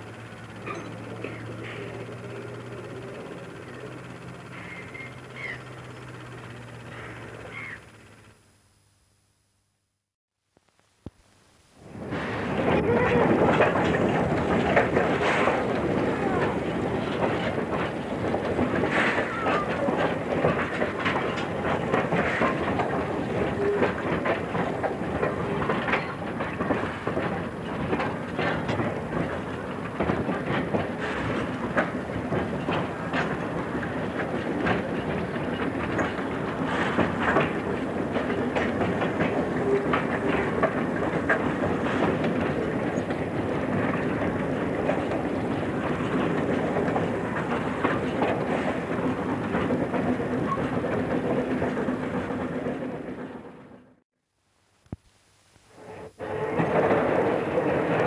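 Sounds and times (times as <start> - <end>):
wheels clicking over rail joints: 0.0 - 8.4, 11.8 - 54.0, 55.9 - 58.0
train running noise: 0.0 - 8.5, 11.5 - 54.0, 55.6 - 58.0.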